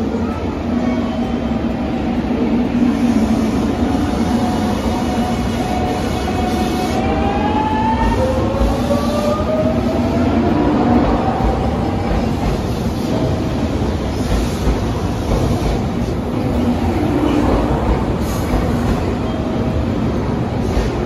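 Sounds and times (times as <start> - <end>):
train rumble: 0.0 - 21.0.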